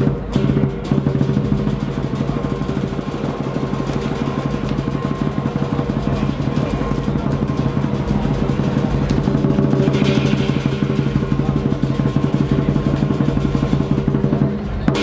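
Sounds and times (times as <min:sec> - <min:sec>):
large drum fast roll: 0:00.0 - 0:15.0.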